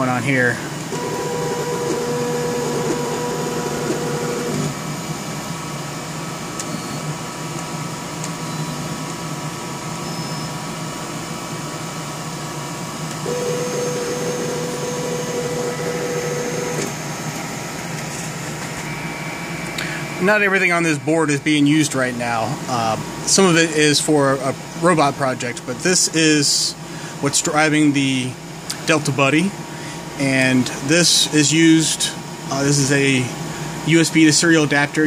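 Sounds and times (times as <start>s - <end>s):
machine hum: 0.0s - 27.4s
stepper motors whining: 0.9s - 4.8s, 13.2s - 20.5s.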